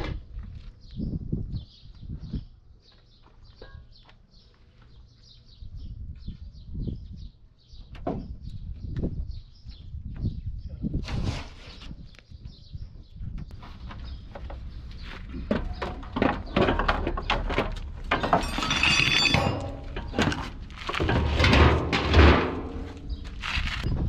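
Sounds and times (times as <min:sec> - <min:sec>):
plastic bumper knocking and scraping: 0:13.6 - 0:23.7.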